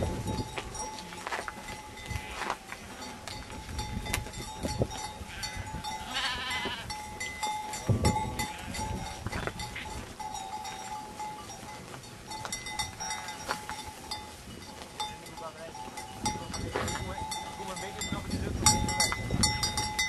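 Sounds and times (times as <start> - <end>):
sheep bleating: 5.2 - 7.0, 8.3 - 10.0.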